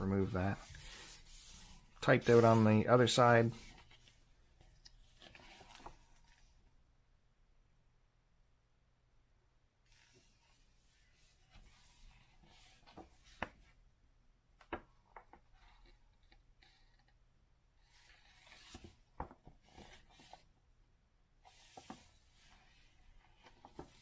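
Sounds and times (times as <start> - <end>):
book pages turning: 3.5 - 6.6, 17.9 - 20.5, 21.5 - 24.0.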